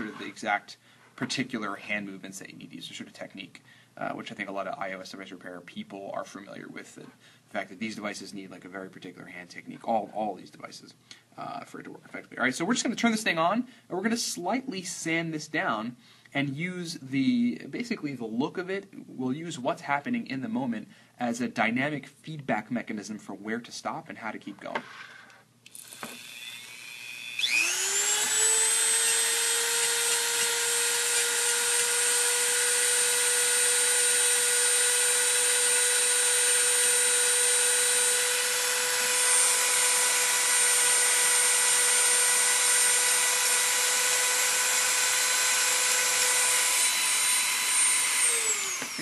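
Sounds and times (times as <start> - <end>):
rotary tool sanding metal: 26.0 - 49.0.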